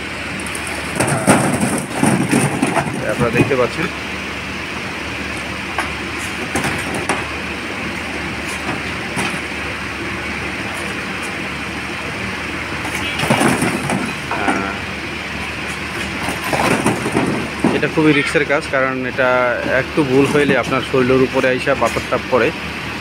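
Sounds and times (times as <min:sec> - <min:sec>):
lumps knocking and clattering: 0:00.4 - 0:03.9, 0:05.8 - 0:07.4, 0:08.1 - 0:09.6, 0:12.8 - 0:14.9, 0:15.6 - 0:18.0, 0:19.6 - 0:20.9.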